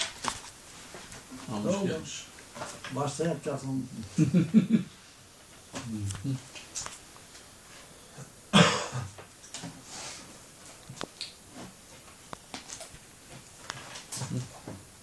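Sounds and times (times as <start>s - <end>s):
man coughing: 8.5s - 9.2s.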